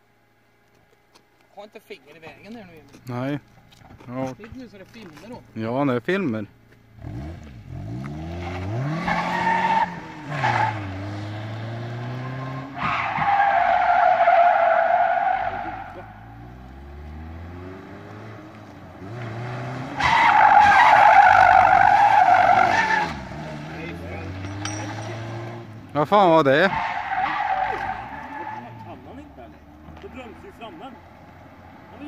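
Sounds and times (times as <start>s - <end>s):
car engine revving: 6.9s - 32.0s
tyres screeching: 8.4s - 11.2s, 12.1s - 17.2s, 19.6s - 32.0s.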